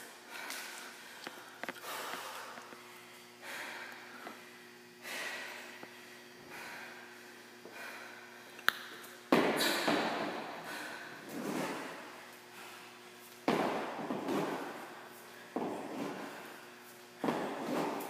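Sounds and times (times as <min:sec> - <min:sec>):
heavy winded breathing: 0:03.4 - 0:08.5, 0:09.6 - 0:13.0
feet thudding against wall: 0:09.3 - 0:10.6, 0:13.4 - 0:16.5, 0:17.2 - 0:18.0.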